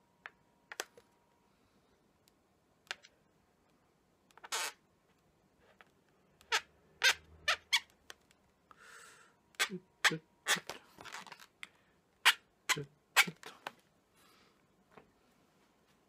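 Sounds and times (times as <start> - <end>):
marker squeaking on a balloon: 4.3 - 4.8, 5.6 - 8.3, 9.5 - 11.6, 12.2 - 13.8.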